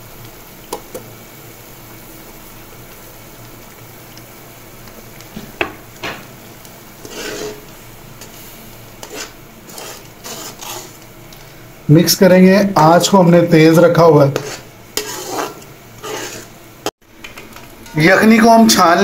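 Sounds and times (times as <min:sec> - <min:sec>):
sauce simmering and sizzling: 0:00.0 - 0:19.0
spatula scraping through sauce: 0:07.0 - 0:11.1, 0:14.3 - 0:16.6.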